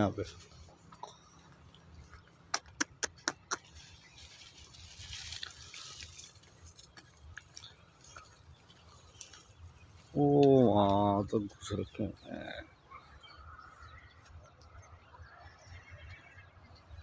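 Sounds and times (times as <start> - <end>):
dry stalks snapping underfoot: 2.4 - 11.2
plants rustling: 3.6 - 11.7.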